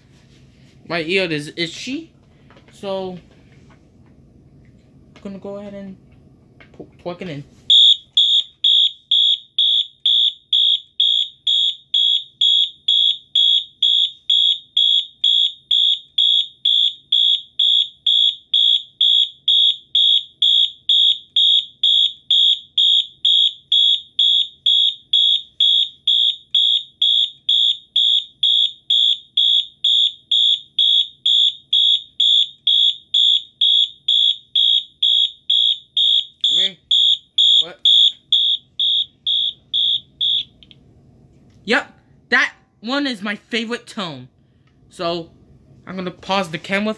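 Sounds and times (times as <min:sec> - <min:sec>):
fire alarm horn pulsing tone: 0:07.7 - 0:40.6.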